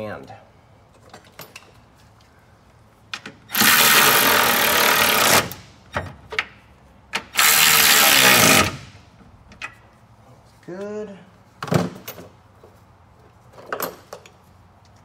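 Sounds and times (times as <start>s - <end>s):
cordless ratchet spinning: 3.6s - 5.5s.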